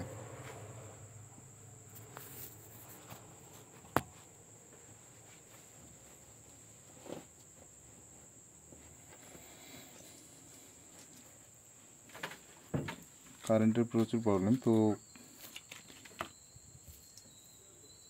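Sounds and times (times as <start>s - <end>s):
faint high-pitched whine: 0.0s - 18.0s.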